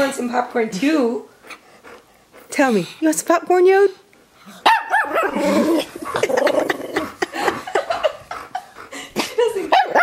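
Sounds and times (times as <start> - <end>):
dog grunting and whining: 4.4 - 9.3
dog yowling: 4.6 - 6.3.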